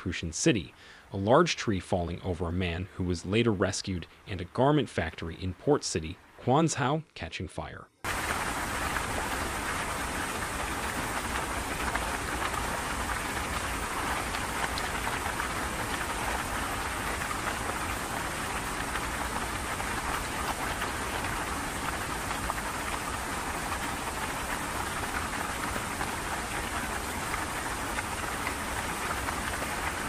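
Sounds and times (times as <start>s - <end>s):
rain: 0.0s - 6.6s, 8.0s - 30.0s
rushing floodwater: 8.1s - 30.0s.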